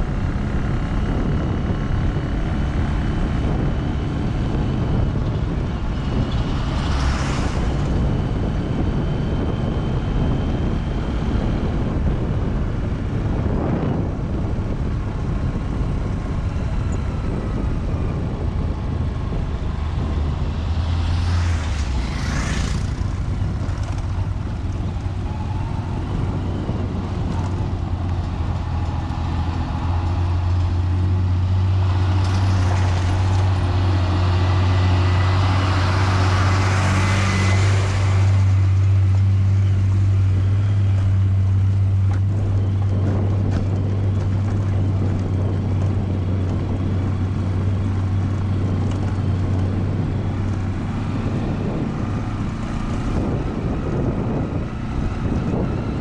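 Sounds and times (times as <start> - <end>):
low engine drone: 0.0 - 56.0
wind and tyre rumble: 0.0 - 56.0
vehicle passing close: 5.9 - 9.5, 19.3 - 41.1.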